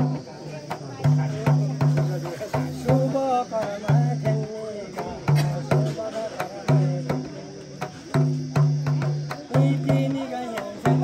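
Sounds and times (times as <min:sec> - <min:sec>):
frame drum booming: 0:00.0 - 0:11.0
person chanting: 0:09.1 - 0:11.0.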